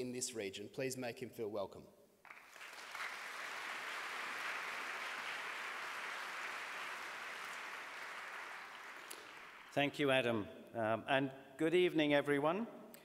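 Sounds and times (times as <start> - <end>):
audience applauding: 2.2 - 9.8.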